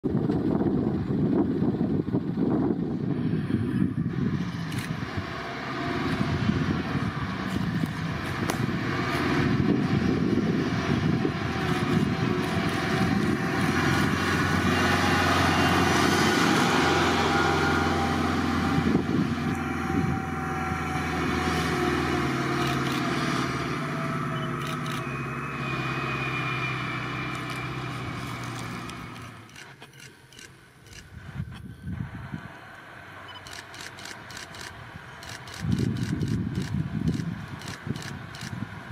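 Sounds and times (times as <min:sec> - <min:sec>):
truck diesel engine running: 0:00.1 - 0:38.9.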